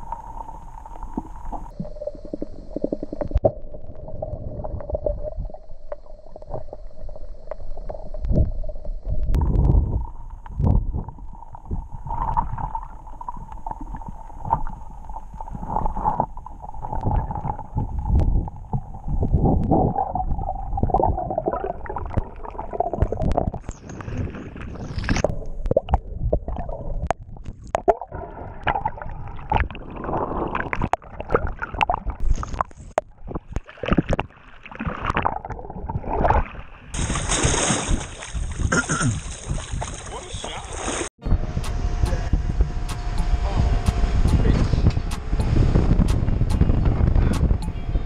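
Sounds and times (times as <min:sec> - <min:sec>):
water splashing: 0:00.0 - 0:42.3
muffled rushing underwater water: 0:00.0 - 0:48.0
steady high hum: 0:41.2 - 0:48.0.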